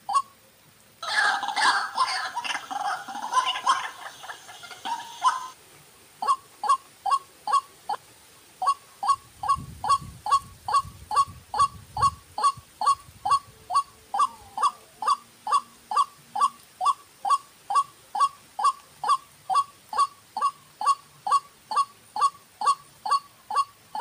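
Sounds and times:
waterhen calling: 0:00.0 - 0:00.4, 0:01.0 - 0:24.0.

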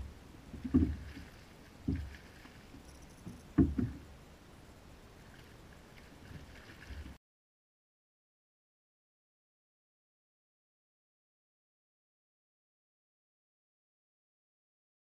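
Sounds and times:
knocks on plastic kayak hull: 0:03.6 - 0:04.0.

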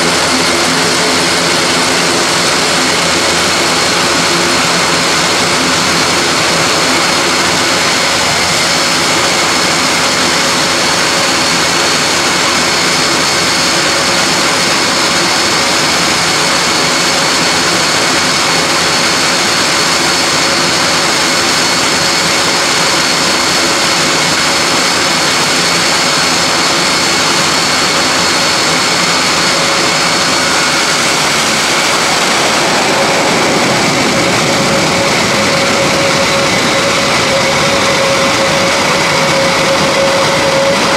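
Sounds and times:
high engine whine: 0:00.0 - 0:40.9
turboprop engines idling: 0:00.0 - 0:40.9
low engine hum: 0:27.4 - 0:40.9.

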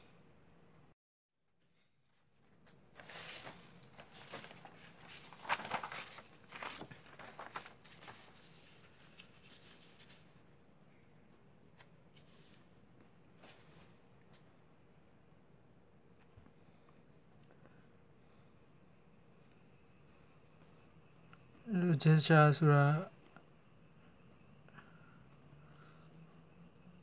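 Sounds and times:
paper rustling and crinkling: 0:02.1 - 0:10.5.

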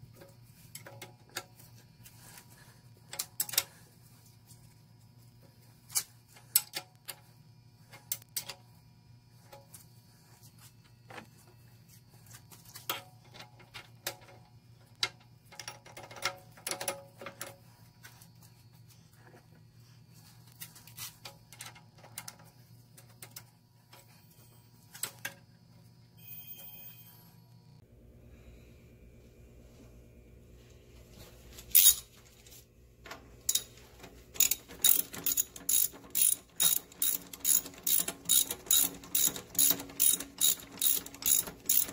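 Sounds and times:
steady low hum: 0:17.2 - 0:41.9
metal gears clicking and clinking: 0:31.7 - 0:32.1, 0:33.5 - 0:33.8, 0:34.4 - 0:41.9
wrench being handled: 0:31.7 - 0:32.1, 0:33.5 - 0:33.8, 0:34.4 - 0:41.9.

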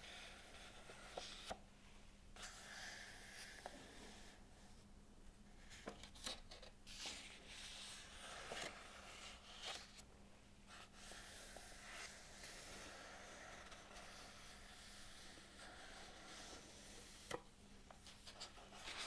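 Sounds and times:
faint steady hum: 0:00.0 - 0:19.0
book pages rustling and turning: 0:05.6 - 0:10.1, 0:15.5 - 0:19.0.

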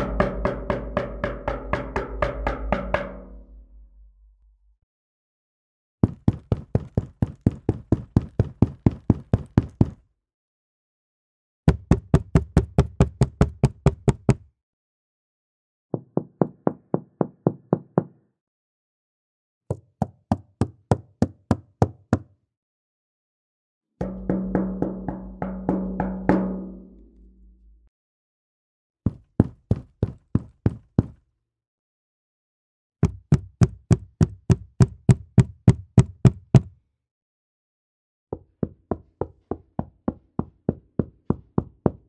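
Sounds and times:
deep humming resonance: 0:24.0 - 0:27.9.

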